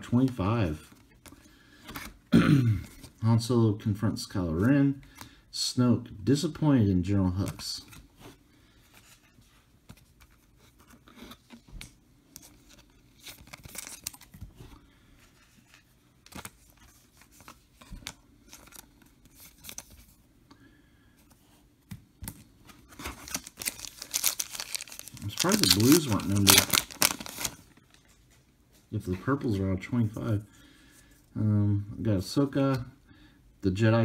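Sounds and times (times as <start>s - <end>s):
cards clicking and rustling: 9.8s - 14.5s, 15.5s - 20.1s, 21.9s - 28.2s
foil packs crinkling: 22.9s - 28.1s.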